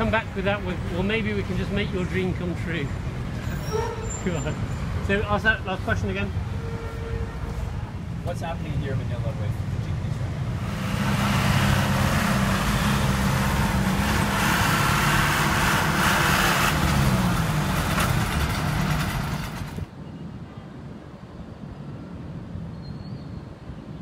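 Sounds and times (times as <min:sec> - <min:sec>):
quiet city ambience: 0:00.0 - 0:19.3, 0:19.9 - 0:24.0
street traffic through open window: 0:00.0 - 0:24.0
steady engine drone: 0:10.4 - 0:19.9.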